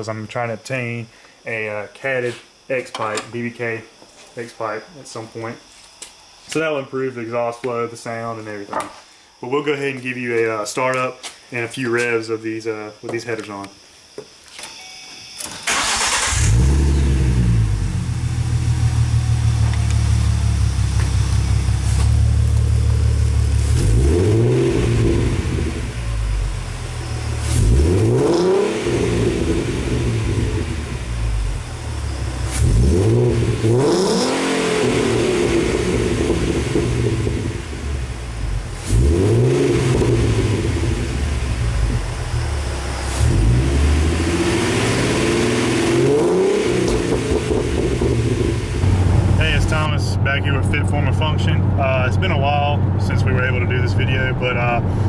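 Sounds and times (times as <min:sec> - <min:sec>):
car engine idling: 0:15.7 - 0:34.0, 0:34.7 - 0:55.0
car engine revving: 0:15.7 - 0:55.0.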